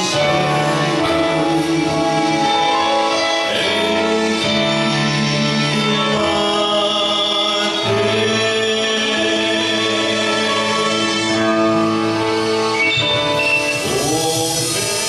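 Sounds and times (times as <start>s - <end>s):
man singing a hymn: 0.0s - 11.9s, 13.8s - 15.0s
sustained accompanying chords: 0.0s - 15.0s.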